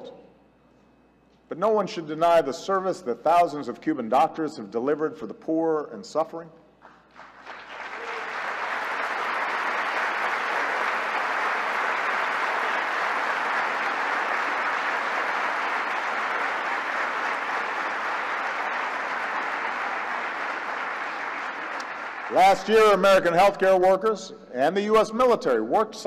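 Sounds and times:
large audience applauding: 0:06.8 - 0:23.6.

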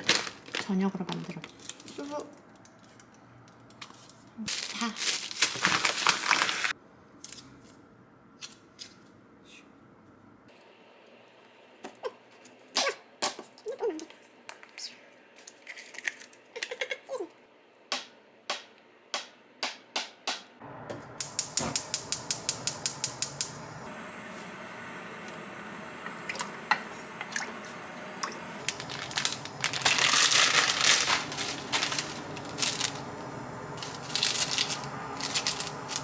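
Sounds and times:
plastic packaging crinkling: 0:00.0 - 0:02.6, 0:04.4 - 0:06.8, 0:28.6 - 0:36.0.

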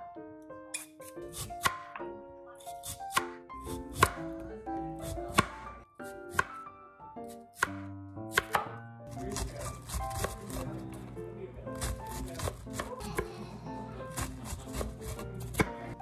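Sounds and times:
light background music: 0:00.0 - 0:16.0
knife slicing on cutting board: 0:00.8 - 0:01.9, 0:05.0 - 0:06.6, 0:07.3 - 0:10.8, 0:11.7 - 0:13.3, 0:14.0 - 0:16.0.

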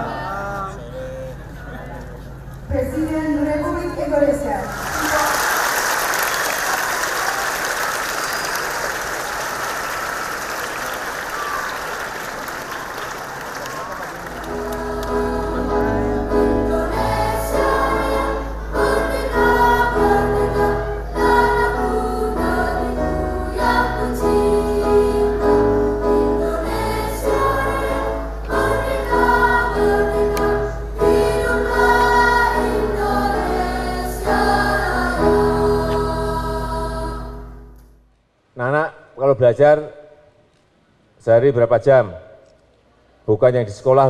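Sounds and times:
crowd singing in chorus: 0:14.4 - 0:37.7.

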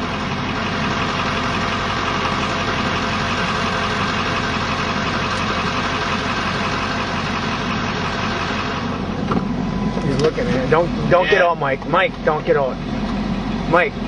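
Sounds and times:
vehicle engine idling: 0:00.0 - 0:14.0.

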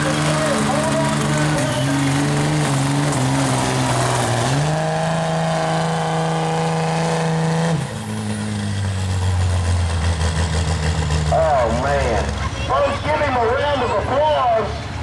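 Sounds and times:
diesel engine revving: 0:00.0 - 0:15.0.

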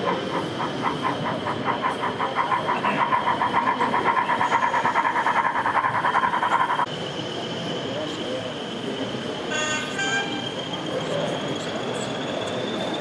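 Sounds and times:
model locomotive exhaust chuffs: 0:00.0 - 0:07.1.

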